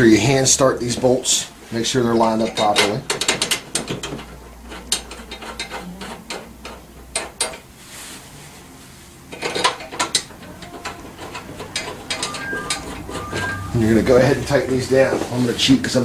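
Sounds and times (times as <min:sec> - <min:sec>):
metal bolts clicking and rattling: 0:02.4 - 0:07.6, 0:09.3 - 0:13.5.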